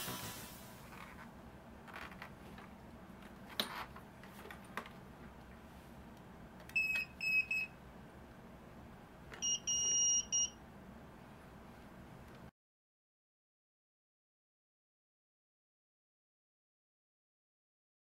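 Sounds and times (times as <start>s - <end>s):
electronic buzzer beeps: 9.4s - 10.5s.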